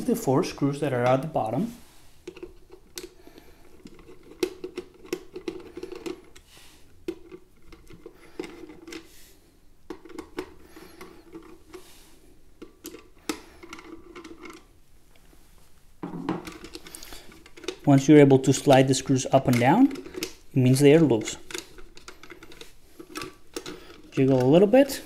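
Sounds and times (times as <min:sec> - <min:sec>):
screwdriver scraping turns: 0:02.2 - 0:06.4, 0:16.4 - 0:25.0.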